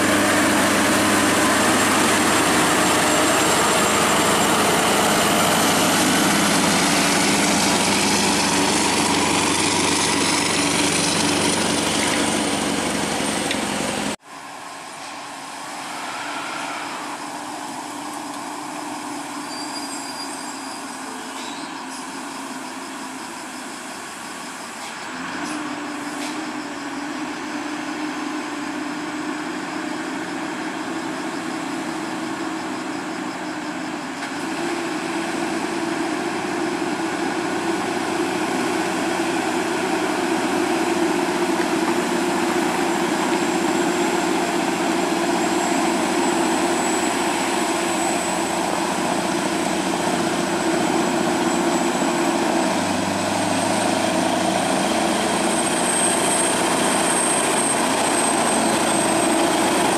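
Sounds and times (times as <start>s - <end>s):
diesel truck engine running: 0.0s - 14.3s, 17.0s - 59.9s
thin high whine: 14.4s - 18.3s.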